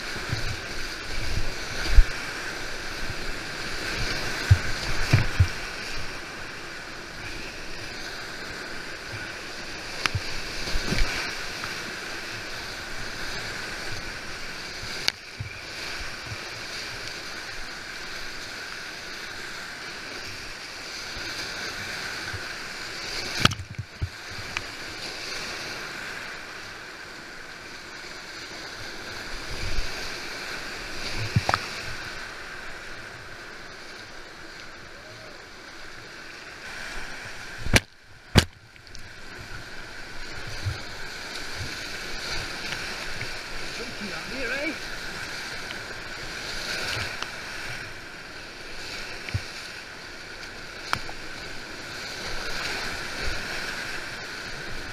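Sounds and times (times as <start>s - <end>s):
sharp knocks and splashes: 4.0s - 5.6s, 37.6s - 39.0s
river rapids rushing: 39.1s - 54.9s.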